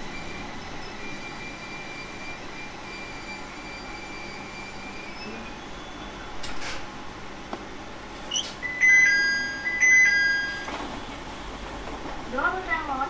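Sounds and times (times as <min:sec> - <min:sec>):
two-note electronic chime: 0:08.6 - 0:10.7
train running noise: 0:08.6 - 0:13.0.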